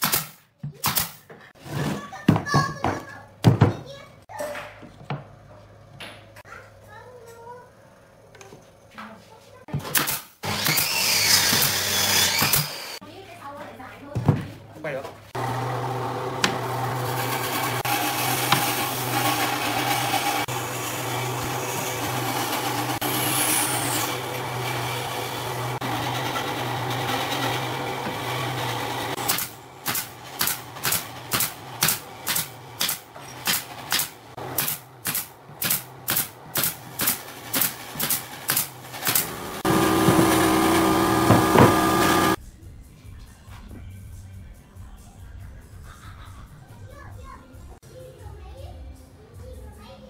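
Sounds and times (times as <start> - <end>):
nail gun firing into wood: 0.0 - 1.2, 9.8 - 11.7, 29.3 - 39.3
loud steady machine noise: 15.4 - 32.8, 37.4 - 42.4
steady machine hum: 39.2 - 42.4.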